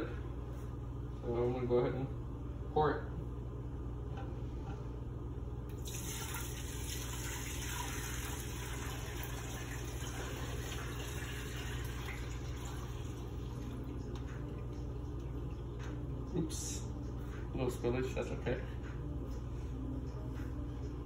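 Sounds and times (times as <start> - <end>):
liquid pouring into pot: 5.7 - 14.2.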